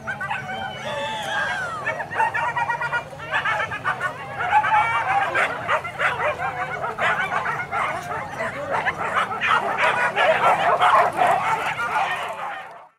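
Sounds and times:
dogs yelping and baying: 0.0s - 12.9s.

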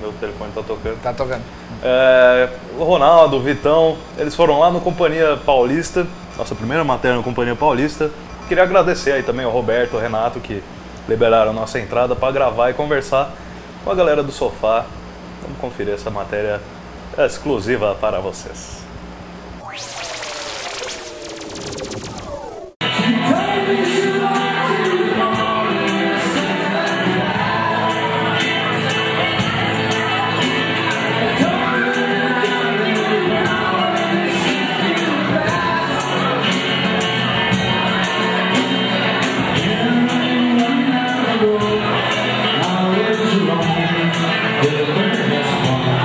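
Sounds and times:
drums: 19.6s - 46.0s
acoustic guitar: 22.8s - 46.0s.

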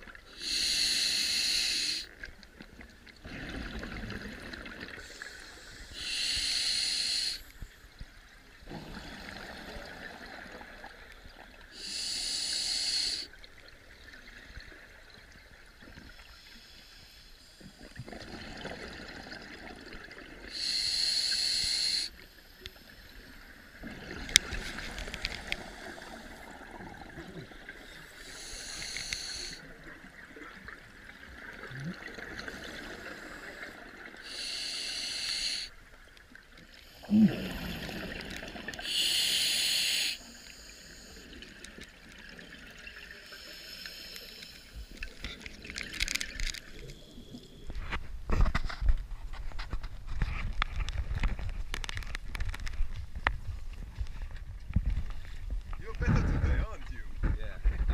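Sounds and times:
regulator hissing inhalations: 0.3s - 2.1s, 5.0s - 7.6s, 11.8s - 13.3s, 20.5s - 23.1s, 27.9s - 29.7s, 32.6s - 35.7s, 36.7s - 41.3s, 43.2s - 45.2s
bubbles gurgling: 3.2s - 5.1s, 8.6s - 11.0s, 17.9s - 20.5s, 30.0s - 34.2s, 37.0s - 38.9s.

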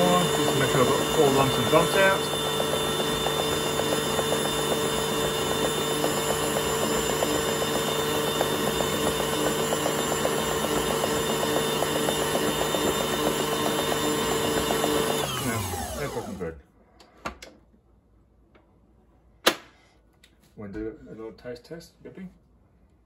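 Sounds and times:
stand mixer motor running: 0.0s - 16.5s.

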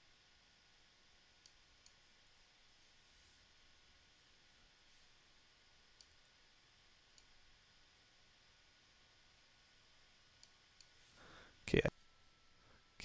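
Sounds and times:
low room hiss: 0.0s - 13.0s
computer mouse clicks: 6.0s - 6.2s.

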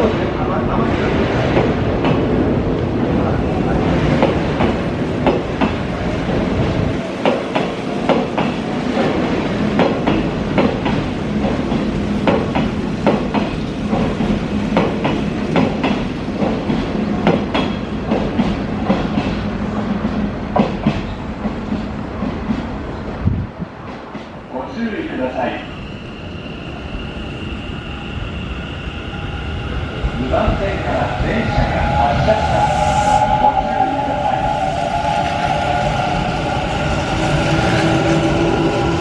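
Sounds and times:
train rolling rumble: 0.0s - 39.0s
train wheels clickety-clack: 1.3s - 2.3s, 4.0s - 22.7s.

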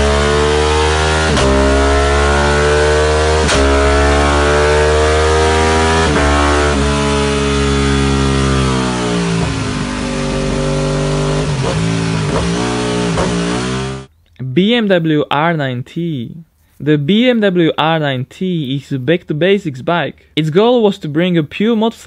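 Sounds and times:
motorcycle engine revving: 0.0s - 14.1s
exhaust crack on upshift: 5.3s - 14.1s.

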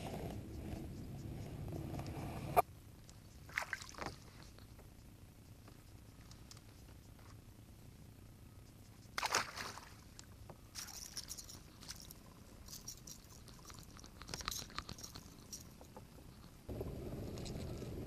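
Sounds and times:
fish splashing into water: 9.2s - 10.0s.

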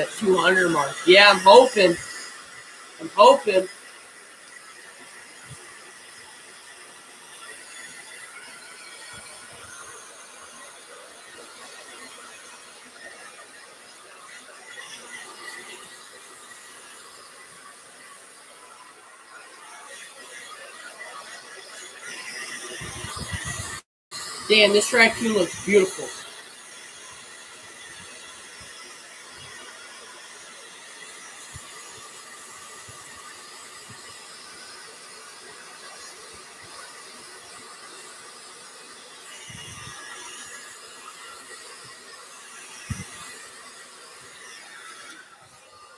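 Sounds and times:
hair dryer running: 0.0s - 45.9s
steady background hiss: 24.4s - 26.3s.

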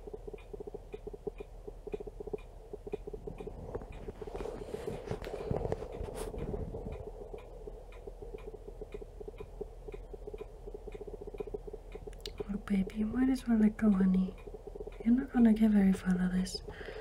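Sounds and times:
camera autofocus motor ticking: 5.2s - 16.0s.

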